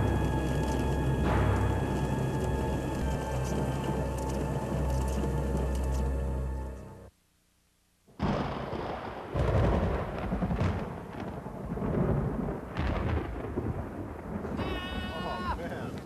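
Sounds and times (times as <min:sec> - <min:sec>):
thunder rumbling: 0:00.0 - 0:06.6, 0:08.2 - 0:16.0
background music: 0:00.0 - 0:07.1.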